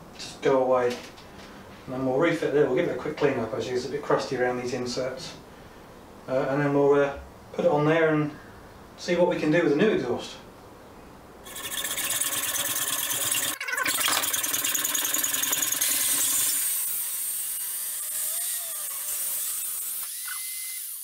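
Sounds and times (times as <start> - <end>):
angle grinder cutting with high whine: 15.2 - 21.0.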